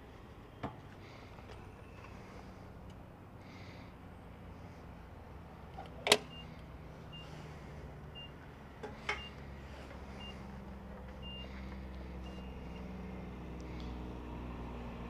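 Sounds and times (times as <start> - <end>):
low engine hum: 0.0 - 15.0
fuel pump short electronic beeps: 5.8 - 8.4, 9.0 - 9.5, 10.1 - 10.6, 11.2 - 13.1.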